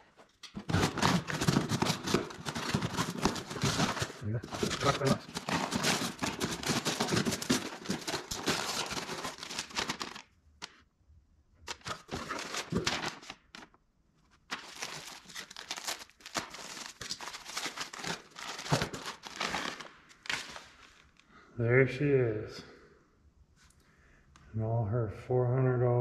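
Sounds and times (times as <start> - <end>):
packaging tearing and crinkling: 0.5 - 10.3, 11.6 - 13.7, 14.4 - 21.2.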